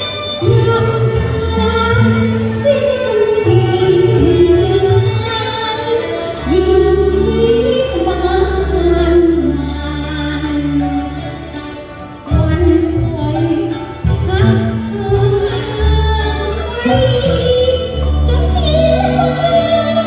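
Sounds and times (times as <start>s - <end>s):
low musical accompaniment: 0.0s - 20.0s
opera singing with sliding notes: 12.4s - 20.0s.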